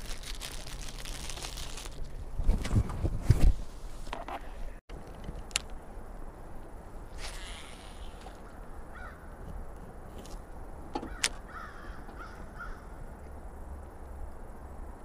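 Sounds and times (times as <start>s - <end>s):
crows cawing: 8.9s - 9.3s, 11.0s - 13.0s.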